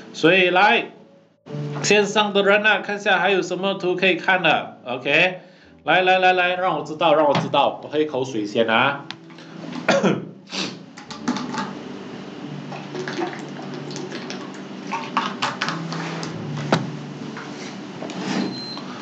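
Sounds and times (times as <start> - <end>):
water pouring and splashing: 12.7 - 16.3.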